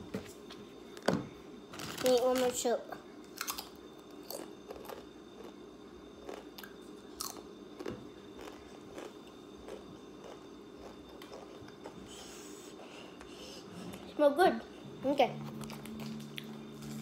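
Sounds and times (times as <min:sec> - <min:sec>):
child chewing crunchy chips: 0:03.3 - 0:05.6, 0:06.2 - 0:14.1, 0:15.4 - 0:17.0.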